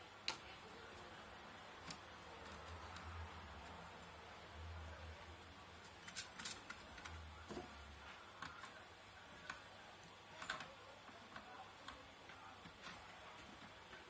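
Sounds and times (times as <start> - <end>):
faint clicks and taps: 0.2 - 1.1, 1.8 - 3.8, 5.8 - 14.0.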